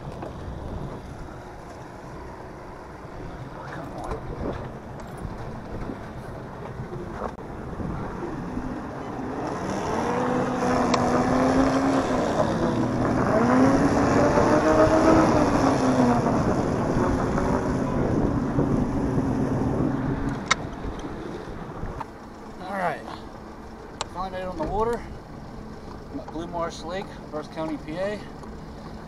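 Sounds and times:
wind buffeting microphone: 0.0s - 1.6s, 2.8s - 22.1s
outboard motor running: 0.0s - 29.0s.

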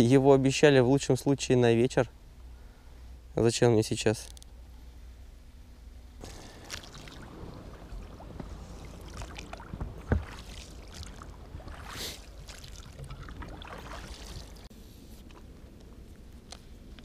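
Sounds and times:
movement in inflatable boat: 6.2s - 15.6s.

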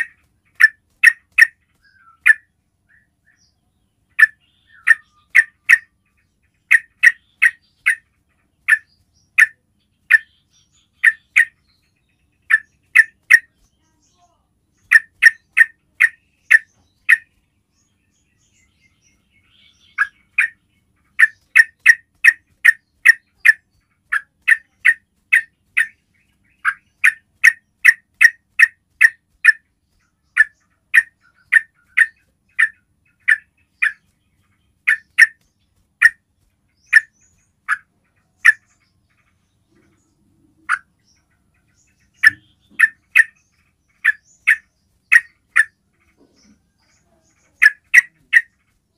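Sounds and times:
bird giving sharp calls: 0.0s - 2.5s, 4.1s - 6.0s, 6.6s - 10.3s, 10.9s - 11.6s, 12.4s - 13.7s, 14.8s - 17.4s, 19.7s - 29.7s, 30.3s - 34.1s, 34.8s - 35.4s, 36.0s - 38.7s, 42.1s - 45.8s, 47.5s - 48.7s.

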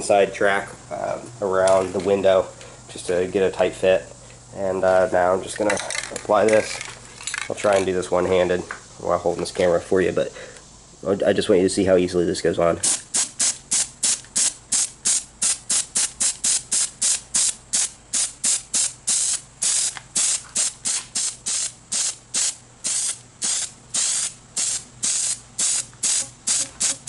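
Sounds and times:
spray paint bursts: 12.8s - 27.0s.

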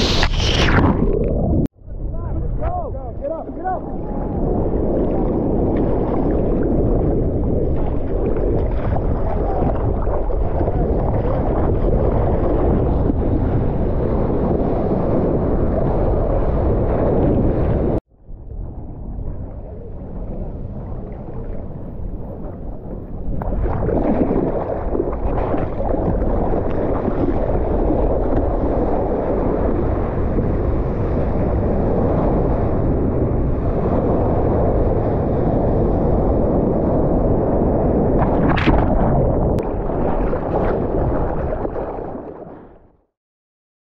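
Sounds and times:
water rushing and splashing: 0.0s - 1.7s, 20.1s - 29.6s, 38.0s - 42.7s
wind buffeting microphone: 0.0s - 42.4s
water slap: 38.2s - 41.9s.

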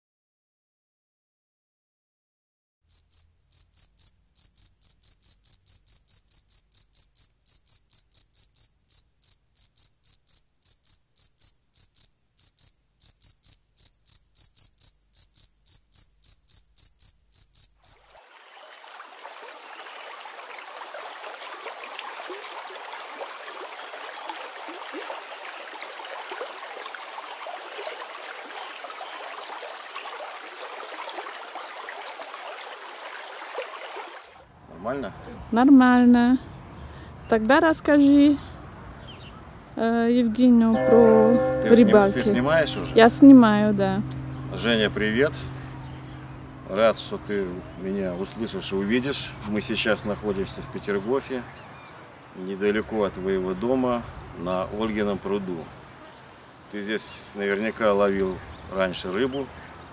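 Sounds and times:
cricket chirping: 2.9s - 18.2s
fountain water splashing: 18.0s - 34.5s.

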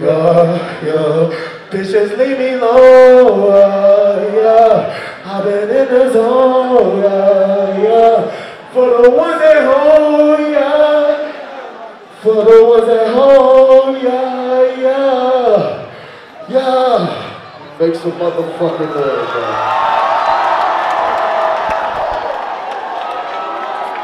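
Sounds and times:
man singing slow song: 0.0s - 11.5s, 12.1s - 16.0s.

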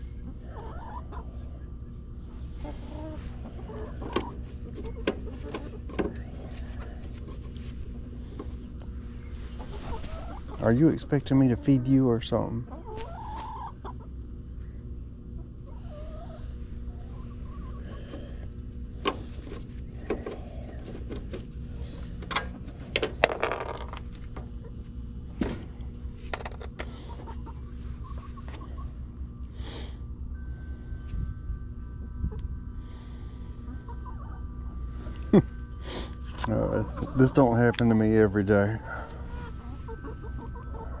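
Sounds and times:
chickens clucking: 0.0s - 14.3s, 15.2s - 21.5s, 23.9s - 24.9s, 25.7s - 29.1s, 33.4s - 41.0s
heat pump humming: 0.0s - 41.0s.

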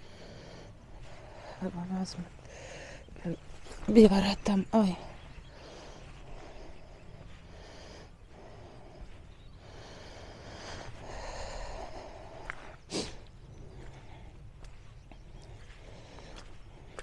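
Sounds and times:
person breathing: 0.0s - 1.7s, 2.4s - 3.2s, 5.1s - 14.6s, 15.4s - 17.0s.

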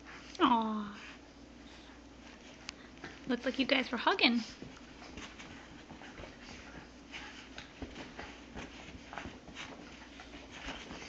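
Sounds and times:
scuffling on carpet: 4.4s - 11.0s.

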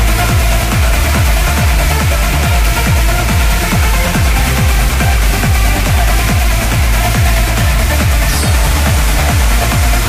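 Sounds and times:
electronic dance music: 0.0s - 10.0s
pounding kick drum: 0.0s - 10.0s.

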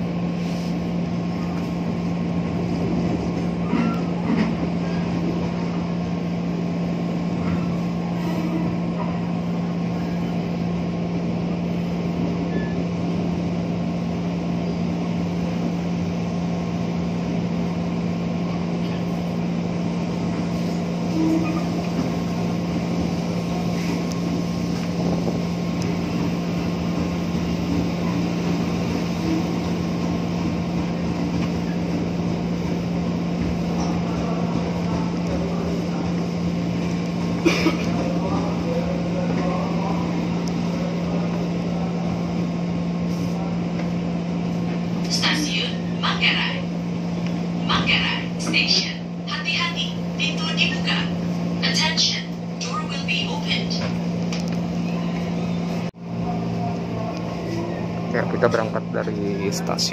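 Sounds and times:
constant hum: 0.0s - 59.9s
electric train running: 1.4s - 42.9s.

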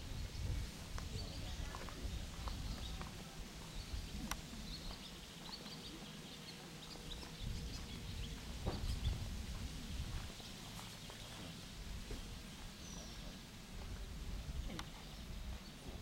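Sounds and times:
low uneven rumble: 0.0s - 16.0s
light clicks: 14.7s - 15.1s.

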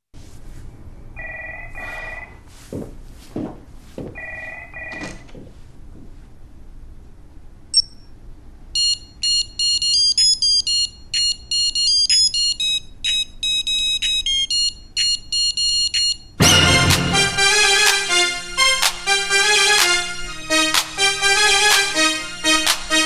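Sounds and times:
electro-funk music: 16.4s - 23.0s.

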